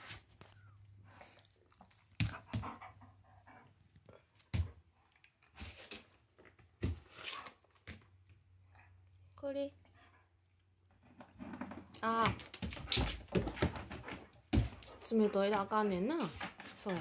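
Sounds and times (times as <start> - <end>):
dog panting: 1.1 - 4.2, 12.8 - 15.8.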